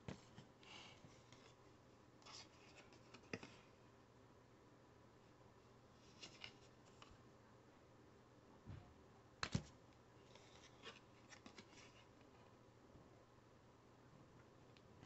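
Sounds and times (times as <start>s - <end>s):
cardboard cards being handled: 2.2s - 3.7s, 6.0s - 7.1s, 9.4s - 12.3s.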